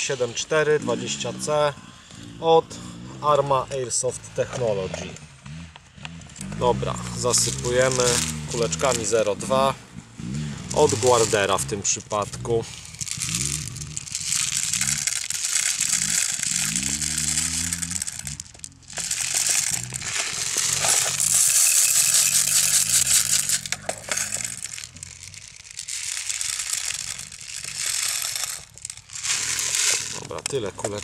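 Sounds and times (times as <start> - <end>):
plastic pellets pouring rattling: 7.0 - 9.7, 10.4 - 31.0.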